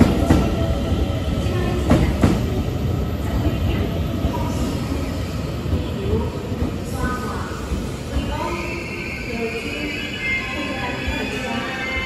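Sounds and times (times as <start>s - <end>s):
train wheels rumbling on rail: 0.0s - 9.6s.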